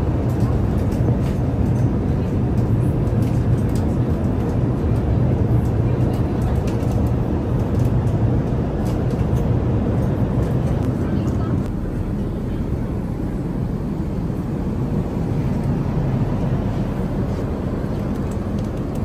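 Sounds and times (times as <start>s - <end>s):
aircraft engine and airflow drone: 0.0s - 19.0s.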